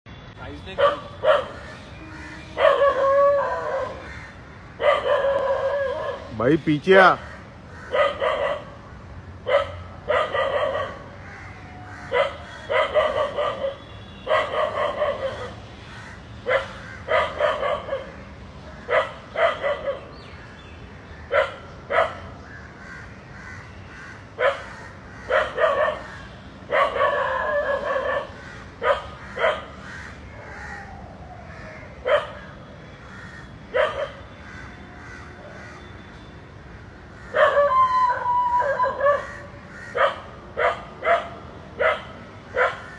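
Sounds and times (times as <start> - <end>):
dog barking: 0.8 - 1.6, 2.6 - 4.0, 4.8 - 6.3, 7.9 - 8.7, 9.4 - 11.1, 12.1 - 15.6, 16.5 - 18.1, 18.9 - 20.1, 21.3 - 22.3, 24.4 - 24.7, 25.3 - 26.1, 26.7 - 29.8, 32.0 - 32.4, 33.7 - 34.3, 37.4 - 37.7, 38.7 - 42.9.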